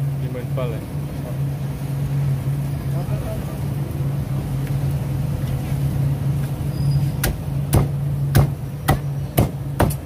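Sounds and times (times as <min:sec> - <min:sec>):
cleaver chopping on wooden block: 0:07.2 - 0:10.0.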